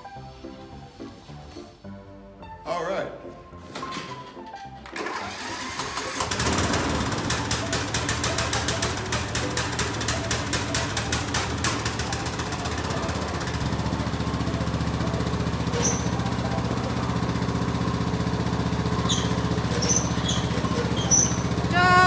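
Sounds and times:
ride-on lawn mower engine: 4.1 - 22.0.

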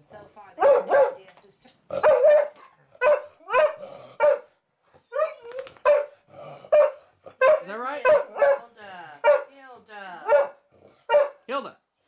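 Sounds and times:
large dog barking: 0.6 - 1.2, 1.9 - 4.6, 5.2 - 9.5, 10.2 - 11.5.

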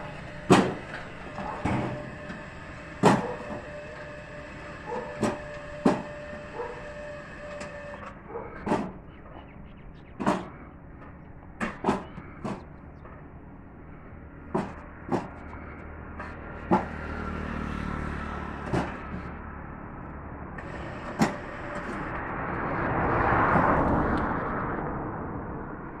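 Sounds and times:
building work knocks and clinks: 14.5 - 15.6
broad rushing noise: 18.1 - 26.0.

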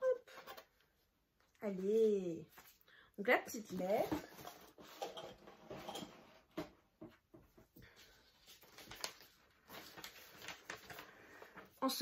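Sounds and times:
paper and cardboard rustling: 3.5 - 6.7, 7.4 - 12.0.

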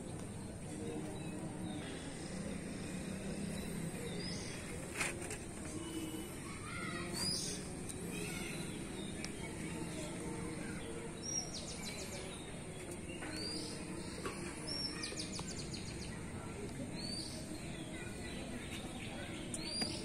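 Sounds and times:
outdoor background noise: 0.0 - 20.0
small birds chirping: 0.0 - 20.0.

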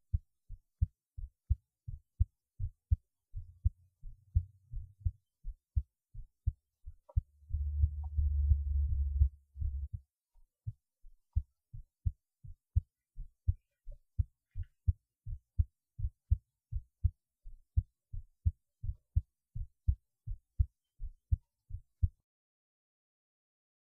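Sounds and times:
heartbeat thumps: 0.8 - 10.0, 14.2 - 17.2, 17.8 - 20.7, 21.3 - 22.2
loud low rumble: 7.4 - 10.0.

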